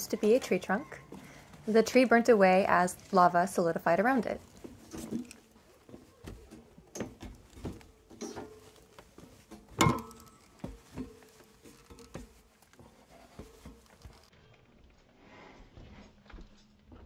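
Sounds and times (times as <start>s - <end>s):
footsteps on steel ladder: 0.1s - 14.3s.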